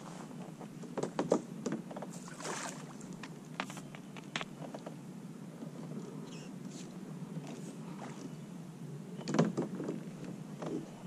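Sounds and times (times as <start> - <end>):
paddle splashing water: 2.1 - 3.2.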